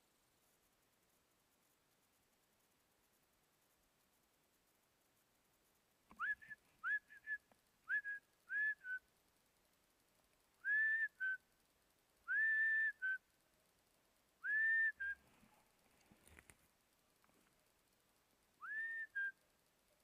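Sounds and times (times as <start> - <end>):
whistled two-note calls: 6.2 - 9.0, 18.6 - 19.4.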